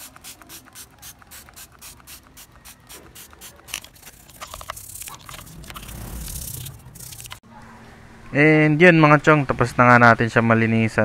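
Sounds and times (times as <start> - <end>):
brush scrubbing metal: 0.0 - 7.4
spray bottle squirting: 0.0 - 7.4.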